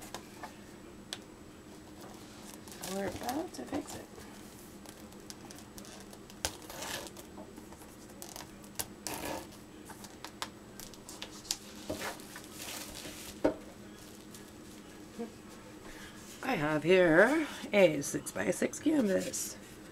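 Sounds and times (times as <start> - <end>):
rustling and crinkling: 1.8 - 15.0.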